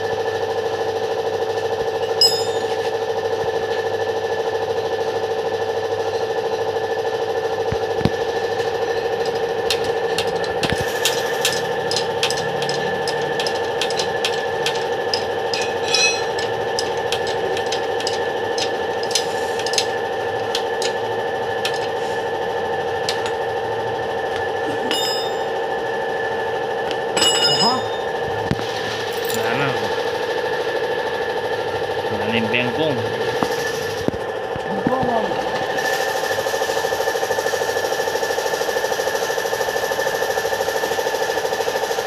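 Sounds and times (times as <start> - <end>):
steady mechanical hum: 0.0 - 42.0
hand tools tapping on metal: 2.1 - 2.9, 9.2 - 21.0, 21.6 - 22.0, 23.0 - 23.4, 24.4 - 25.6, 27.2 - 28.1
ringing metal strikes: 2.1 - 2.9, 11.4 - 19.2, 24.8 - 25.6, 27.1 - 28.2.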